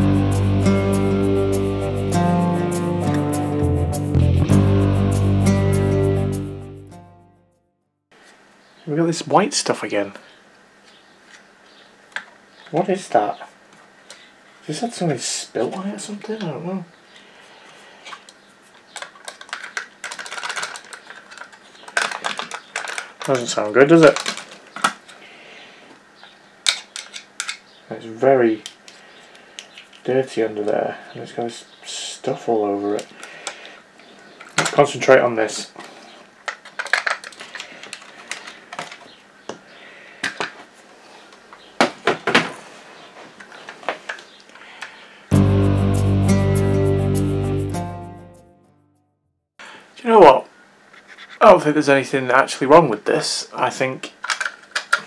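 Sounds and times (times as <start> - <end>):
plastic fan clicking and rattling: 18.2 - 25.2, 36.4 - 39.0, 54.1 - 55.0.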